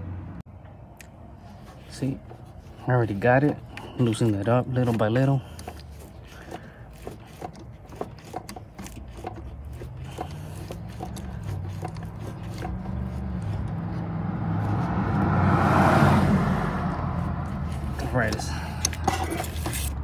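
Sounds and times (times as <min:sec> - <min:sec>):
oil filter wrench clicks and scrapes: 0:01.0 - 0:14.0, 0:17.2 - 0:20.0.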